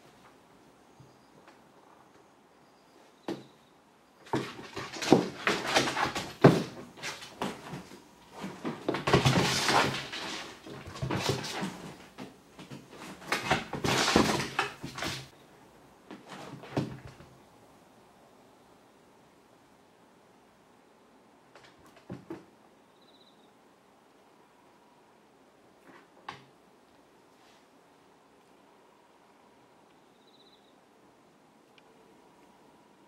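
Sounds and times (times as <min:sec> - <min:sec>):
cat claws scrabbling on wood: 0:04.2 - 0:15.3
cat paws thumping on wood: 0:04.2 - 0:15.3.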